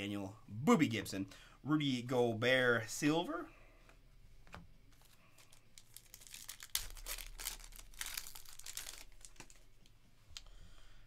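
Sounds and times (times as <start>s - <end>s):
foil wrapper crinkling: 5.0s - 9.9s.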